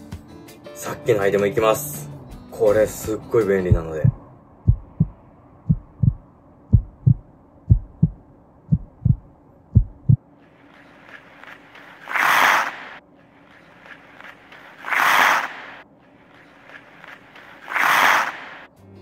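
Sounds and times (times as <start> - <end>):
heartbeat thumps: 3.6 - 10.2
steady hiss: 10.4 - 18.7.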